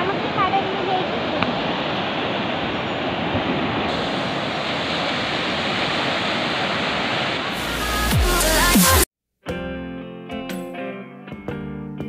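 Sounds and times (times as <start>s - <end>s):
sea surf breaking on beach: 0.0s - 8.1s.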